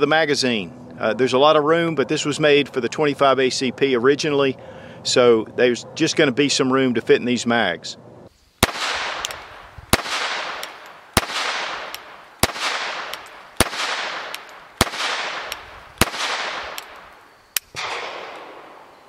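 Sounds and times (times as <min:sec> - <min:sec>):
pistol shots with echo: 0:08.6 - 0:17.1, 0:17.7 - 0:19.0.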